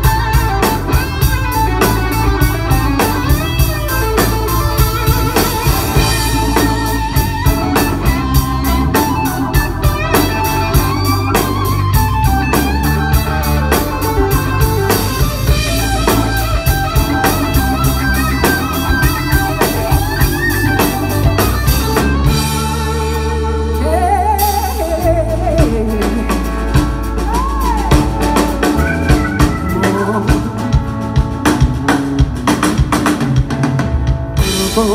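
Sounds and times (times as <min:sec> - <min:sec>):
organ: 0:00.0 - 0:24.8
electric guitars: 0:00.0 - 0:34.9
steady drum beat: 0:00.0 - 0:34.9.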